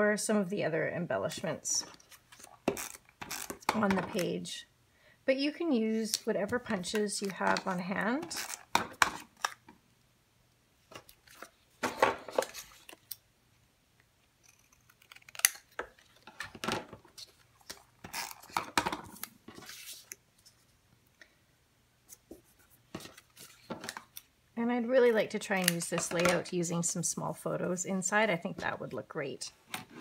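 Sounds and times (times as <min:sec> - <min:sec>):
paper rustling and sliding: 0:18.4 - 0:20.7.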